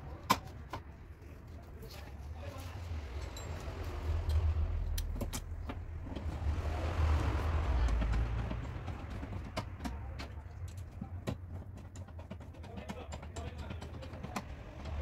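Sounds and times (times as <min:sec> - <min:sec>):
steady low rumble: 0:02.2 - 0:09.5
hand tools tapping on steel: 0:07.6 - 0:15.0.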